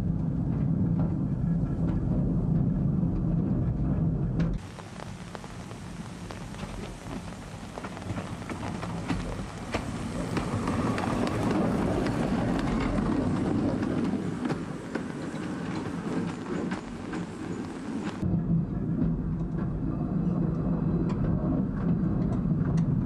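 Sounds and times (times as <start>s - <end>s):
steam locomotive rumbling past: 4.6s - 23.0s.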